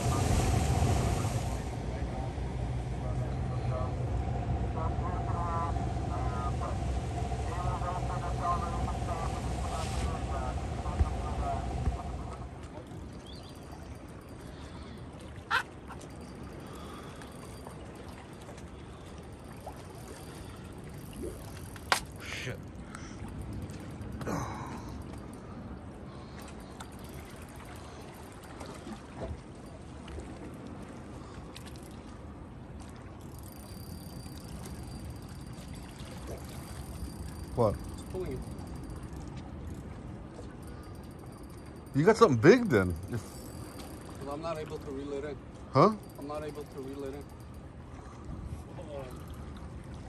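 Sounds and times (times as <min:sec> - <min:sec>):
low rumble: 0:00.0 - 0:13.1
wind: 0:00.0 - 0:50.0.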